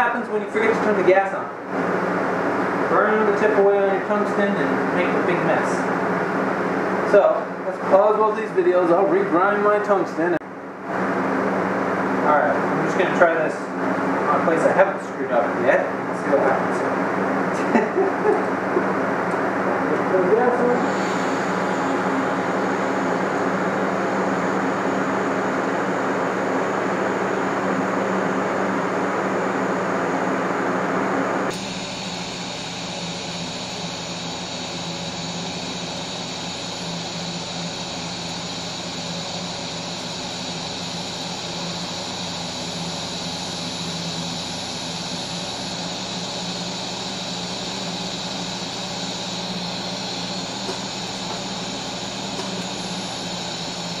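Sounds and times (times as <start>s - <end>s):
welder hum and hiss: 17.5s - 54.0s.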